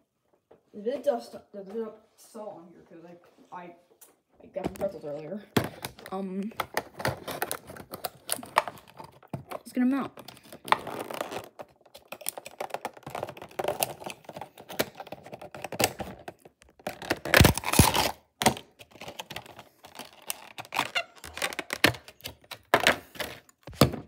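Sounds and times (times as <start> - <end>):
packaging clicks and taps: 5.6 - 24.0
packaging rustling: 5.6 - 24.0.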